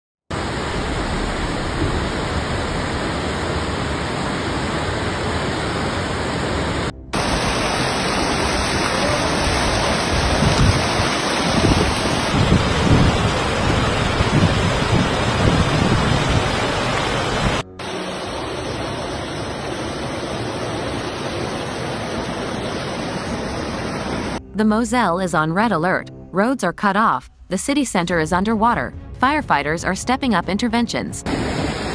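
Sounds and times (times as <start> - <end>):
floodwater rushing: 0.3 - 24.4, 31.3 - 31.9.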